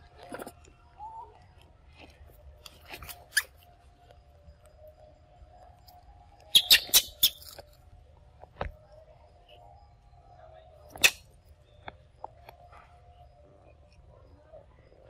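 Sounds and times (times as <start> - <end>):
faint steady tone: 3.5 - 6.5, 7.4 - 15.0.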